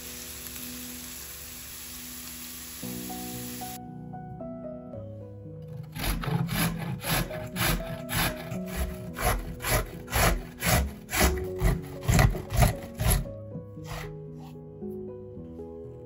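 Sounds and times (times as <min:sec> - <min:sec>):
soft background music: 0:00.0 - 0:16.0
vegetable grating on a grater: 0:06.0 - 0:14.5.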